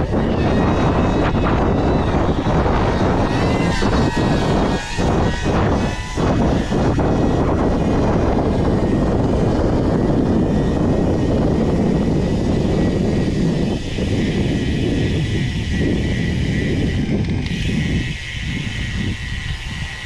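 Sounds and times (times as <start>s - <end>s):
drone motors whirring: 0.0s - 20.0s.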